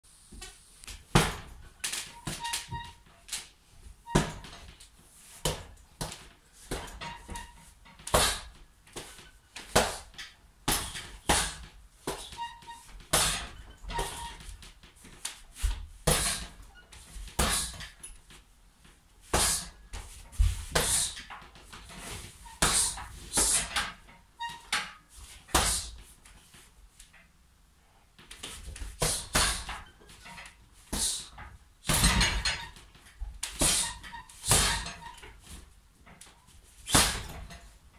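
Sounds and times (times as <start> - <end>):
hits thudding on heavy bag: 1.1 - 1.6, 4.1 - 4.7, 10.7 - 12.3, 13.1 - 14.2, 16.0 - 16.6, 19.3 - 19.8, 28.9 - 29.8, 30.9 - 32.6, 33.6 - 35.0, 36.9 - 37.5.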